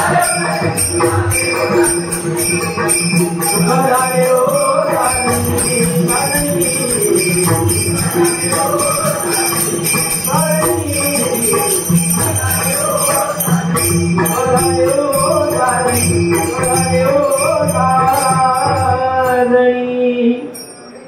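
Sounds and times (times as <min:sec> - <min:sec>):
jingling hand cymbals: 0:00.0 - 0:19.8
man singing devotional song: 0:00.0 - 0:20.8.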